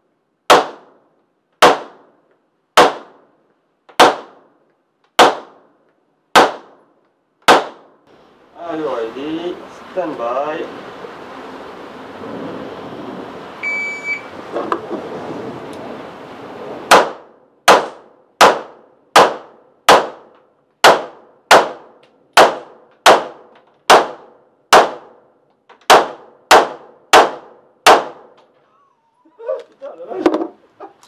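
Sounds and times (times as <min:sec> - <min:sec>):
pistol shots: 0:00.5 - 0:01.0, 0:01.6 - 0:02.2, 0:02.8 - 0:03.3, 0:03.9 - 0:05.7, 0:06.3 - 0:08.0, 0:16.9 - 0:25.2, 0:25.9 - 0:28.4
shot timer beep: 0:13.6 - 0:14.3.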